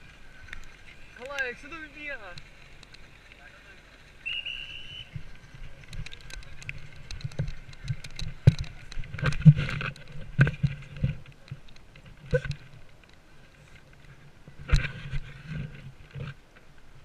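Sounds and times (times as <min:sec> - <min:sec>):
knocks and scrapes on camera: 0:05.9 - 0:12.8, 0:14.6 - 0:16.4.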